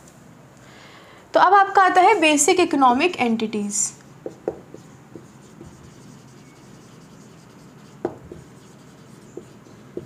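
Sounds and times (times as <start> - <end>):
marker pen writing on whiteboard: 4.2 - 10.0.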